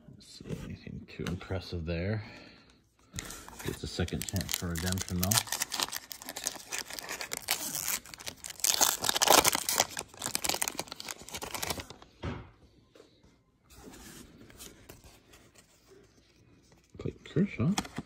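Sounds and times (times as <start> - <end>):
cards being handled: 3.1 - 12.0
foil wrapper crinkling and tearing: 3.3 - 12.0.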